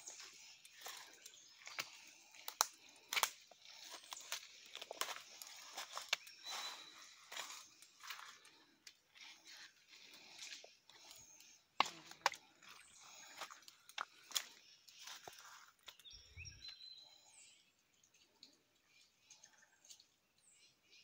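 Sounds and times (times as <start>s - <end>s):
footsteps crunching dry leaves: 0.0s - 16.0s
twigs snapping: 0.6s - 6.4s, 11.0s - 12.5s.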